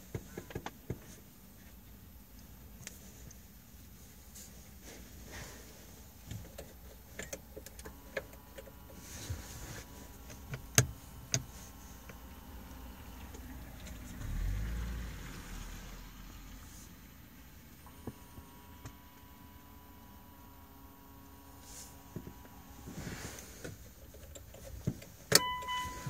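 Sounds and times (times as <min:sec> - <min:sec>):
handling clicks and knocks in car: 0:00.0 - 0:03.5, 0:06.0 - 0:14.2, 0:22.0 - 0:26.0.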